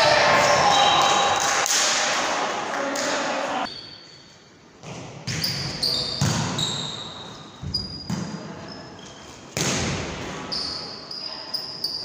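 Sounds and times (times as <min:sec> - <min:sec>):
sneakers squeaking on court: 0:04.8 - 0:09.6
volleyball hits echoing: 0:09.5 - 0:10.4.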